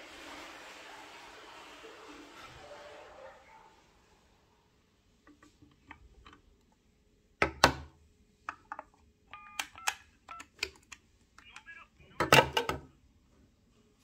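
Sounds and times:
telephone dial tone: 9.3 - 10.6.

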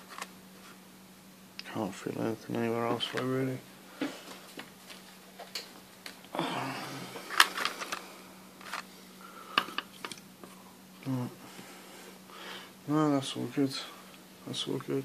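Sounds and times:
faint low hum: 0.0 - 15.0
clicks and taps handling wires: 2.5 - 3.4, 4.5 - 6.3.

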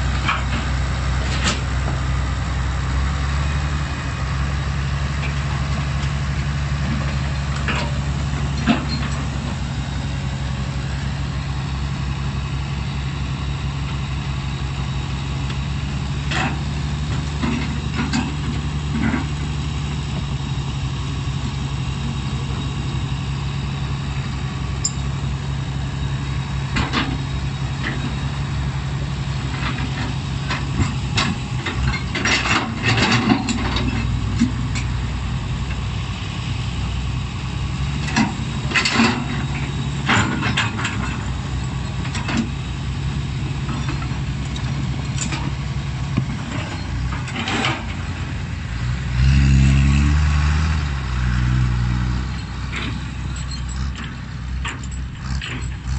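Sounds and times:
diesel engines running: 0.0 - 55.9
engine revving: 47.2 - 54.3.

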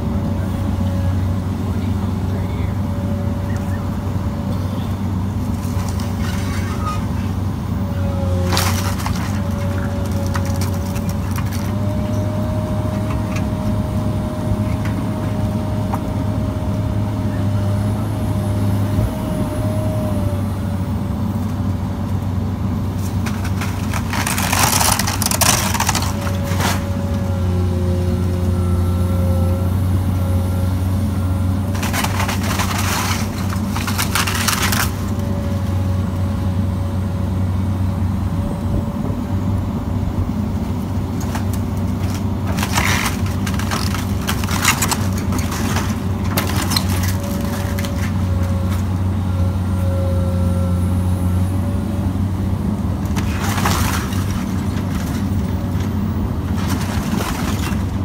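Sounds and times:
excavator diesel engine running: 0.0 - 58.0
timber crunching and cracking: 7.9 - 16.1, 22.8 - 28.4, 31.4 - 35.8, 41.0 - 49.0, 52.9 - 58.0.

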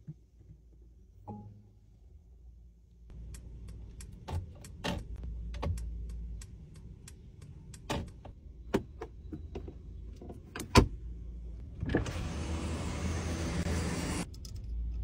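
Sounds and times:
turn signal ticking: 3.1 - 9.8
interior control clicks: 3.1 - 10.9.

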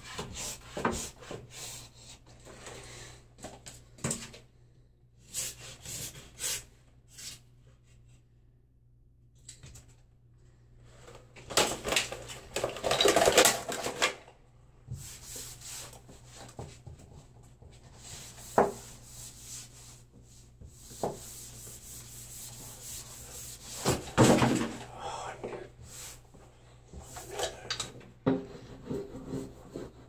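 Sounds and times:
wallpaper rubbing and scraping: 14.9 - 24.7, 28.3 - 30.0.

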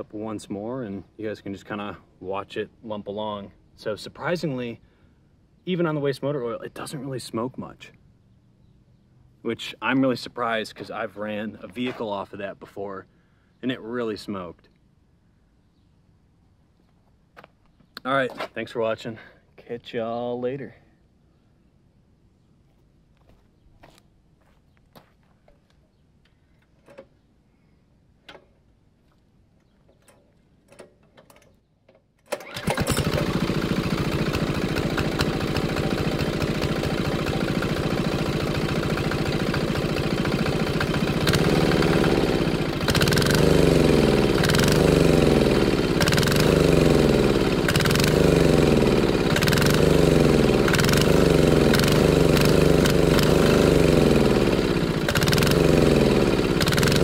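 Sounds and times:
diesel engine running: 32.4 - 57.0.

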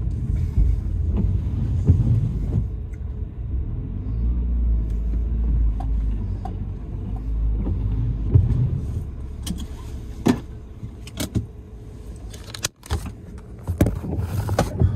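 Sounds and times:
clicks and knocks in car cabin: 0.0 - 3.2, 5.1 - 11.6, 12.2 - 14.9
car engine and road rumble: 0.0 - 14.9.

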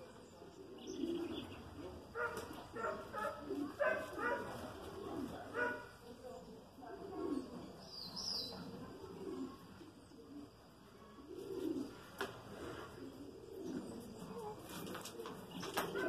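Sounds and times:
soft low bird calls: 0.0 - 4.3.

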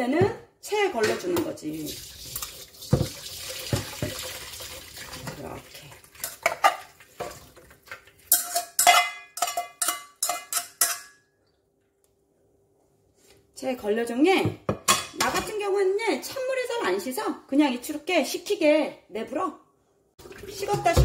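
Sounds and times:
water pouring through strainer: 1.8 - 8.2
metal tongs clinking: 8.3 - 11.2.

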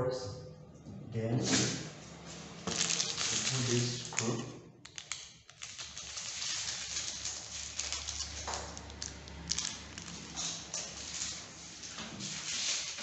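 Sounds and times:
plastic bag crinkling: 2.5 - 13.0
screws clicking in a bag: 4.9 - 10.6.

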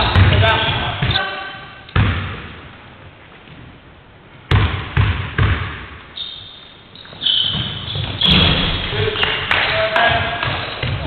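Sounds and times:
basketball bouncing on wooden floor: 0.0 - 1.2, 2.0 - 2.5, 4.5 - 6.0, 7.1 - 8.9, 10.1 - 11.0
high squeaks: 6.2 - 9.4.

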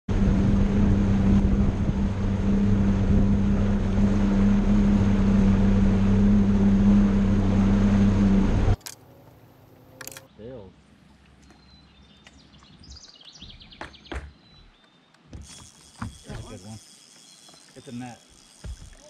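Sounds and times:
wind buffeting microphone: 0.1 - 7.3
water rushing past hull: 0.1 - 8.8
outboard motor running: 0.1 - 10.2, 15.3 - 19.0.

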